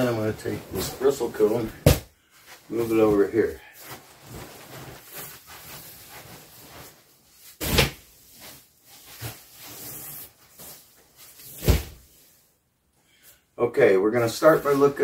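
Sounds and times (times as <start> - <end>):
sleeping bag fabric rustling: 0.0 - 12.0.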